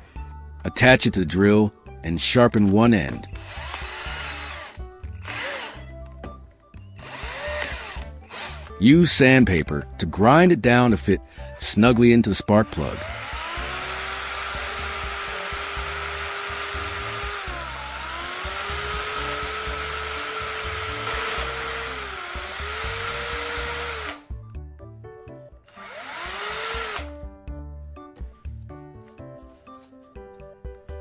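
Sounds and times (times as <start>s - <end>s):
cordless drill motor whine: 3.3s - 5.9s, 7.0s - 8.7s, 12.9s - 24.2s, 25.7s - 27.1s.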